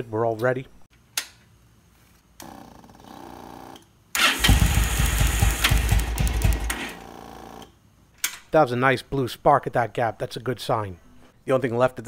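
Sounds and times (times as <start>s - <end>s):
motorcycle engine cranking: 4.2s - 7.0s.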